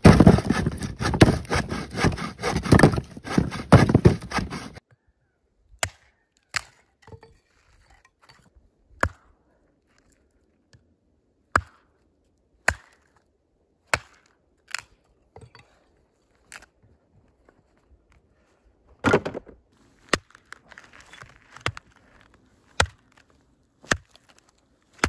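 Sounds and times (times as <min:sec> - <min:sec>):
axe chopping firewood: 0:00.0 - 0:04.8, 0:09.0 - 0:09.2, 0:11.5 - 0:11.9, 0:12.6 - 0:13.1, 0:13.9 - 0:14.9, 0:22.8 - 0:23.2, 0:23.8 - 0:25.0.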